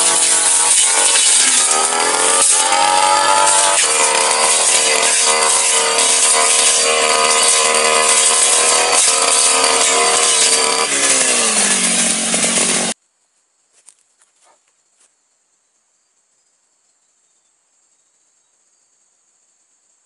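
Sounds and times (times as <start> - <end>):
brush cutter engine running: 0.0 - 13.0
insect sounds: 13.0 - 20.0.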